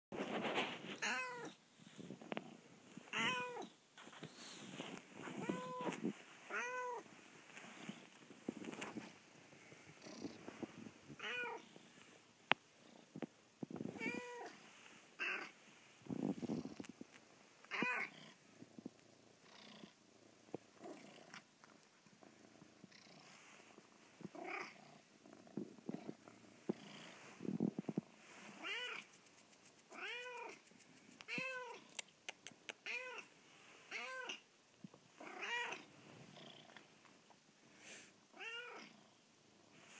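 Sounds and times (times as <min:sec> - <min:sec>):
cat meowing: 0:01.0 - 0:01.5, 0:03.1 - 0:03.7, 0:05.4 - 0:07.0.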